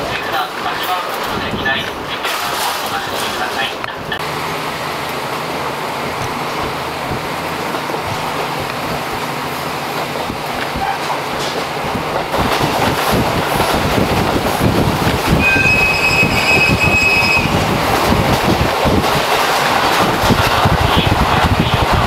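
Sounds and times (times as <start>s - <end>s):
train rolling on rails: 0.0s - 22.0s
steel wheel squeal: 15.3s - 17.6s.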